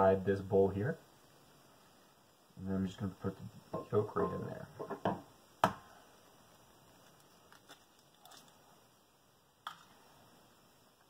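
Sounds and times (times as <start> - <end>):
egg cracking on countertop: 7.0 - 8.6.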